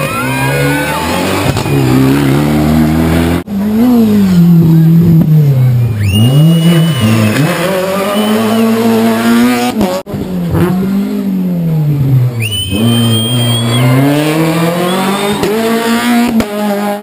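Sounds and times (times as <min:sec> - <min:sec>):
rally car engines revving: 0:00.0 - 0:17.0
tyre squeal: 0:06.0 - 0:08.8, 0:12.4 - 0:15.6.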